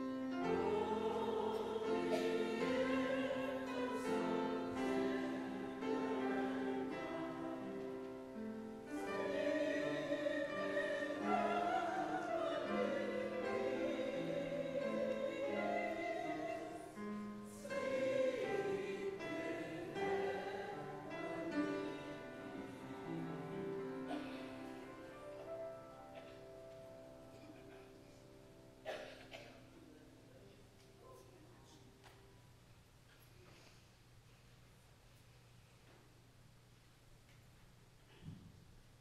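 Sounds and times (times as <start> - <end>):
slow song with accompaniment: 0.0 - 29.6.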